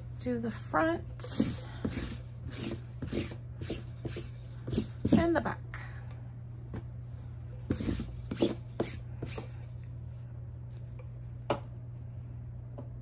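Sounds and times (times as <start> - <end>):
lint roller rolling over shirt: 1.2 - 5.4.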